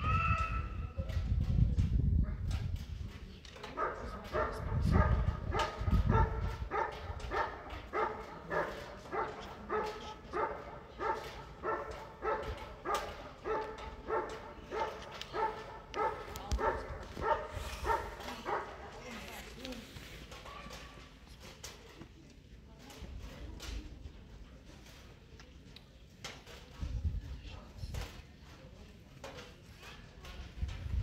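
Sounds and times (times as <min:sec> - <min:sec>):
wind rumbling on microphone: 0:00.0 - 0:08.4, 0:10.3 - 0:19.1, 0:26.7 - 0:28.2, 0:30.2 - 0:31.0
dog barking: 0:03.8 - 0:19.0.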